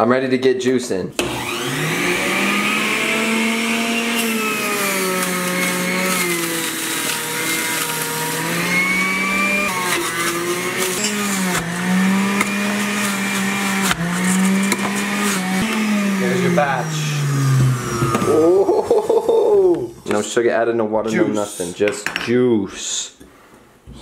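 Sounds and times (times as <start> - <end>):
juicer motor crushing celery: 1.2 - 18.7.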